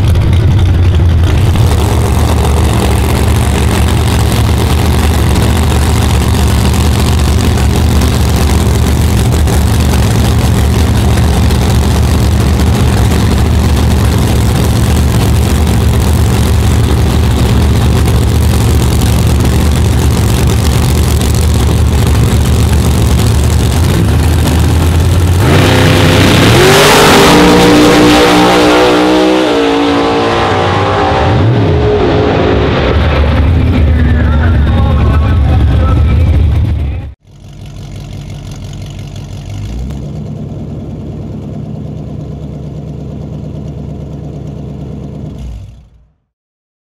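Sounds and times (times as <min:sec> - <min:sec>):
drag car engines idling: 0:00.0 - 0:26.5, 0:33.0 - 0:46.2
drag cars accelerating: 0:00.0 - 0:37.1.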